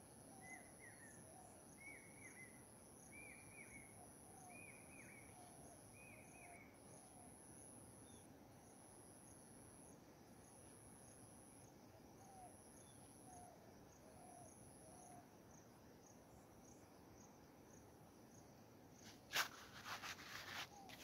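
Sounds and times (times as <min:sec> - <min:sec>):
insects chirring: 0:00.0 - 0:21.0
footsteps in dry grass: 0:19.1 - 0:21.0.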